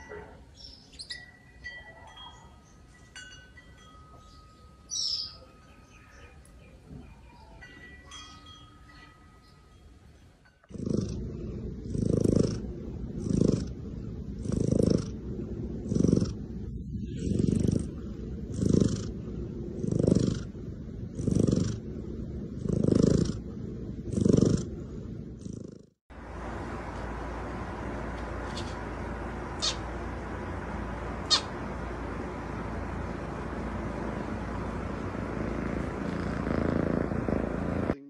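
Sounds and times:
cat purring: 0:10.6 - 0:21.9, 0:22.5 - 0:25.9, 0:28.5 - 0:38.0.

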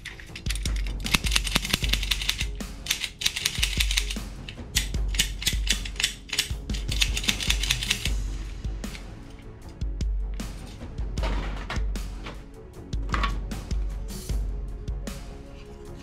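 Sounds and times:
toy gun mechanism ratcheting: 0:00.0 - 0:08.1
background music: 0:00.0 - 0:16.0.

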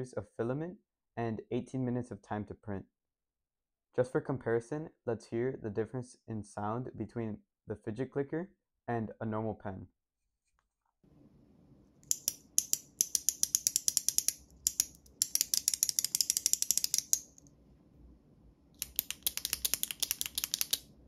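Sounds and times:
click pen button clicking: 0:12.0 - 0:17.4, 0:18.8 - 0:20.9
plastic fidget clicker clicking: 0:12.0 - 0:17.4, 0:18.8 - 0:20.9.

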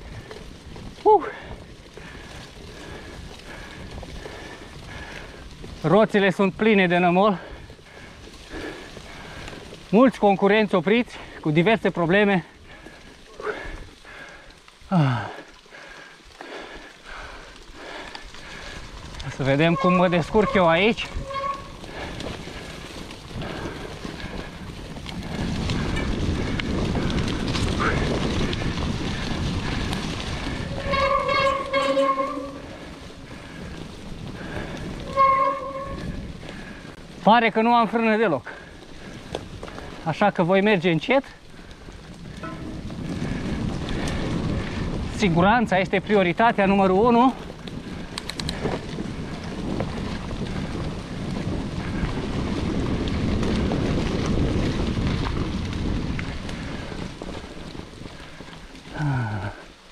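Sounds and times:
mountain bike rolling on mud: 0:00.0 - 0:59.9
tyre rumble: 0:16.6 - 0:37.3, 0:41.4 - 0:45.9
wind on microphone: 0:18.5 - 0:37.1, 0:41.6 - 0:46.4, 0:47.2 - 0:59.4
bicycle disc brakes squealing: 0:19.3 - 0:22.8, 0:30.3 - 0:33.7, 0:34.5 - 0:36.7, 0:42.2 - 0:44.9
light clicks and rattles: 0:47.6 - 0:48.9.

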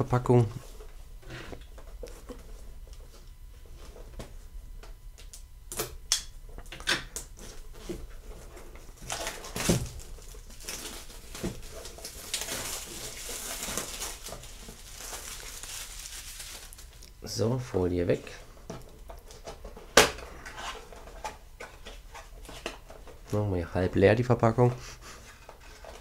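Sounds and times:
shrink-wrap crinkling: 0:07.4 - 0:17.2.

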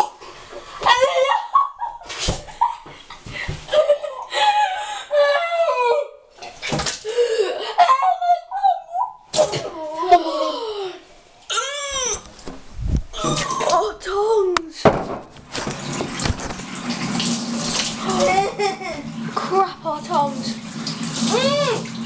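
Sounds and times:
girls laughing and squealing: 0:00.8 - 0:03.0, 0:03.7 - 0:06.3, 0:07.6 - 0:10.7
girls spluttering: 0:13.1 - 0:14.0, 0:17.8 - 0:19.7.

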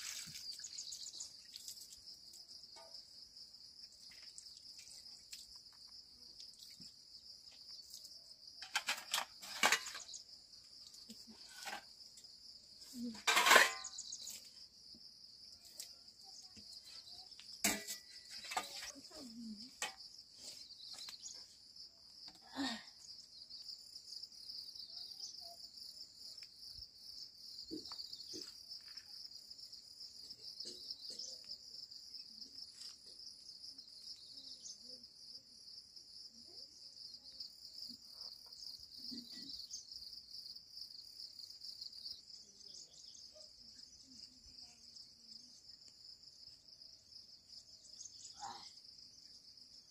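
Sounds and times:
insects chirring: 0:00.0 - 0:49.9.

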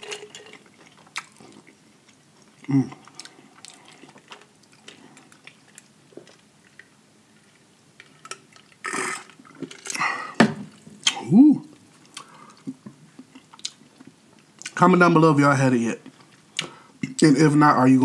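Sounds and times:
drink slurped through straw: 0:08.8 - 0:09.4.

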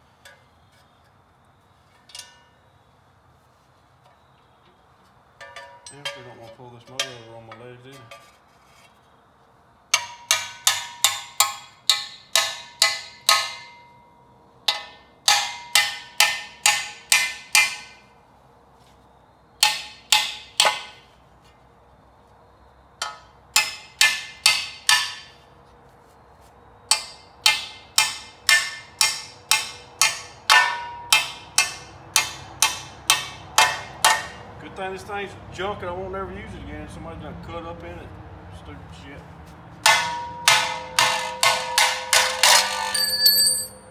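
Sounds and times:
hammer blows on steel: 0:39.8 - 0:43.9.

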